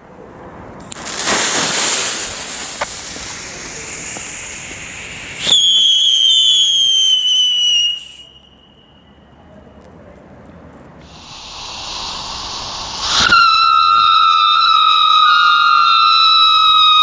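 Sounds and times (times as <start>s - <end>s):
firework pop: 0.8s - 5.8s, 13.0s - 14.1s
firework hissing: 0.8s - 8.4s, 11.0s - 17.0s
firework whistling: 0.8s - 9.1s, 11.0s - 17.0s.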